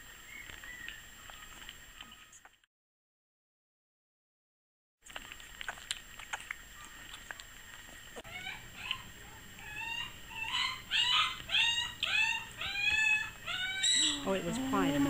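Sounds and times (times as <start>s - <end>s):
puppies sucking and smacking: 0.3s - 2.7s, 5.0s - 15.0s
puppy whining: 8.2s - 15.0s.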